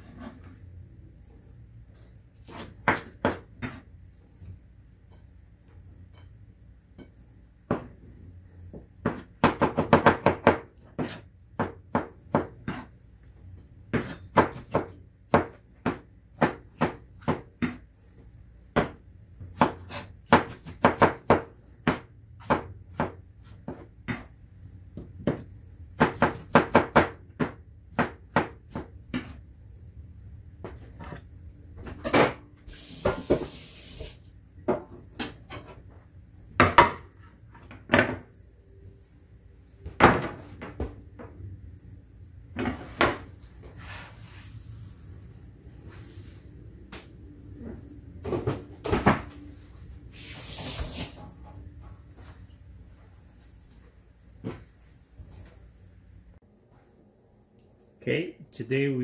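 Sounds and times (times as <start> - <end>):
knife chopping on wooden board: 9.0 - 12.9, 13.9 - 17.8, 19.6 - 24.3.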